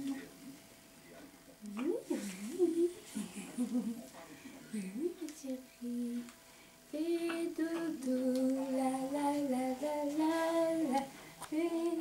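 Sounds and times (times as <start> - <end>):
person singing wordless melody: 1.6 - 4.0, 4.7 - 6.3, 6.9 - 12.0.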